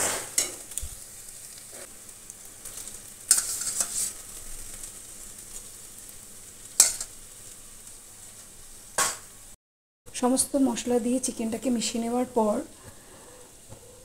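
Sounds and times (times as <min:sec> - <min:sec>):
sizzling and scraping: 0:00.0 - 0:09.6
masala frying in a pan: 0:00.0 - 0:14.0.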